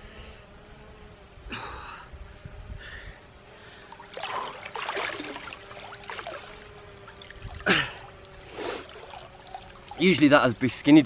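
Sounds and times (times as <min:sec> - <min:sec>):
faint steady hum: 0:00.0 - 0:11.0
water sloshing and splashing: 0:03.9 - 0:11.0
loud splash: 0:04.0 - 0:10.6.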